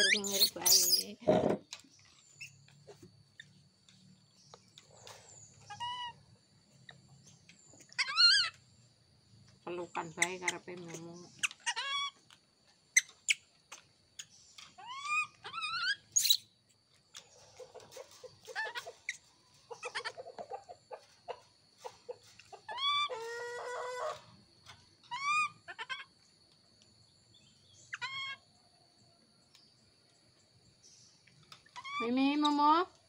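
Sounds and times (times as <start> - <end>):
baby monkeys crying: 0.0 - 1.2, 7.9 - 8.6, 11.4 - 12.2, 14.8 - 16.4, 18.5 - 20.4, 22.7 - 24.2, 25.1 - 26.1, 27.9 - 28.4, 31.7 - 32.2.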